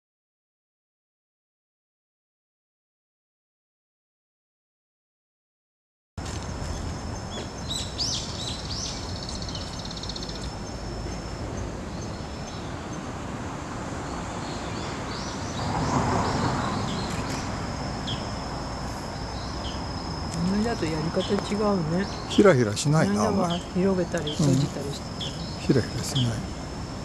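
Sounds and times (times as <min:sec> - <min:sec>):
small birds chirping: 0:06.3 - 0:13.1, 0:14.0 - 0:26.6.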